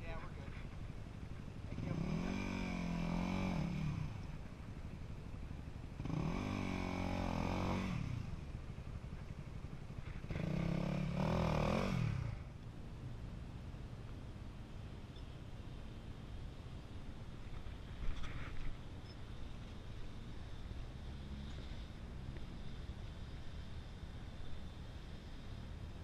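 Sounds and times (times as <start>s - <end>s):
off-road vehicle engine revving: 1.6s - 4.5s, 5.8s - 8.4s, 10.0s - 12.5s.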